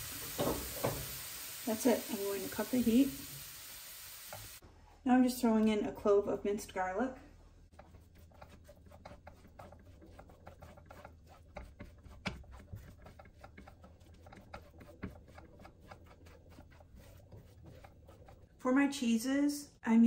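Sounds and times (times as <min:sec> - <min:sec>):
plastic spatula scraping a pan: 0:07.7 - 0:19.1.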